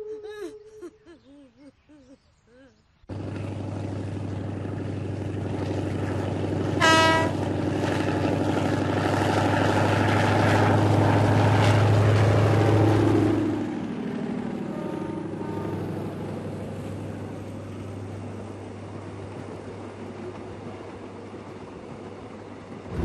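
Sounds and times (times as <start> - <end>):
train rumbling on rails: 3.1 - 23.0
train horn blast: 6.8 - 7.4, 14.6 - 16.4.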